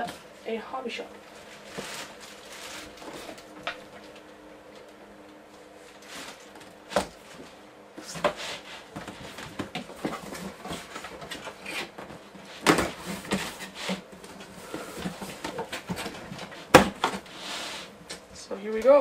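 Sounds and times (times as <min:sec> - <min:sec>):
cardboard scraping and rustling: 0:01.3 - 0:03.7, 0:05.9 - 0:18.0.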